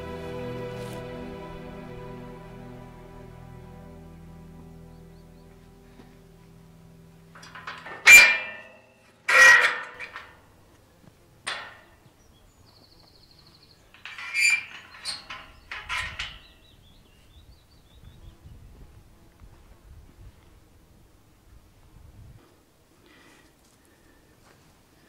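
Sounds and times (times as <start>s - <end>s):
metal gate latch clanking: 7.3s - 10.4s, 11.5s - 11.9s, 14.0s - 16.6s.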